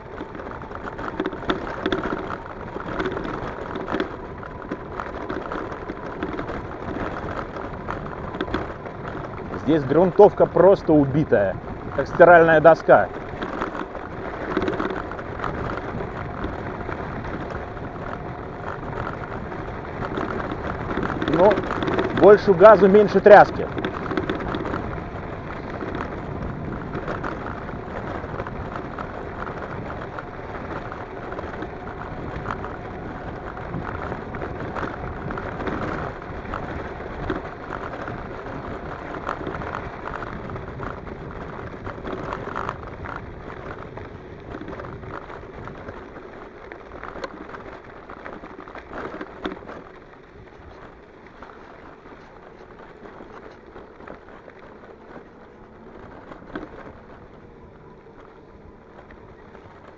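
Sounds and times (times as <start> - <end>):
bike rattling and jolting: 0.0 - 59.9
tyres crunching on gravel: 0.0 - 59.9.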